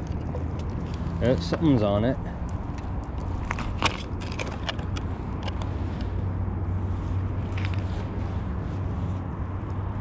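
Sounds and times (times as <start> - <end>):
fishing line clicks and rustles: 0.0 - 6.2
wind rumble on microphone: 0.0 - 10.0.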